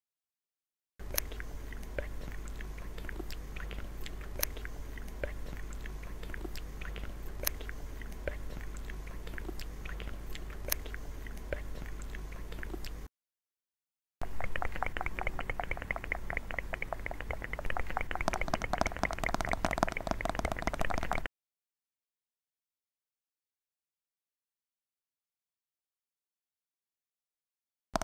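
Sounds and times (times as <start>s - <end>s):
low steady hum: 1.0s - 13.1s, 14.2s - 21.3s
wet mouth clicks and pops: 1.1s - 13.1s, 14.2s - 21.3s.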